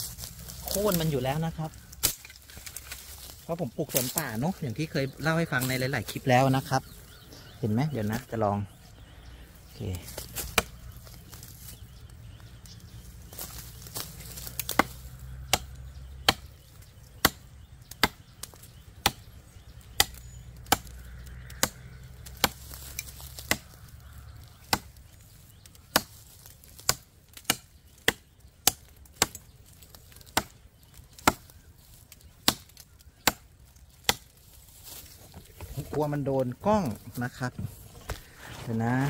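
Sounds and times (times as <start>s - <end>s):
knife chopping into tree trunk: 2.0s - 3.3s, 10.1s - 10.8s, 13.4s - 16.5s, 17.2s - 19.3s, 25.9s - 29.4s, 30.3s - 30.5s, 38.0s - 38.7s.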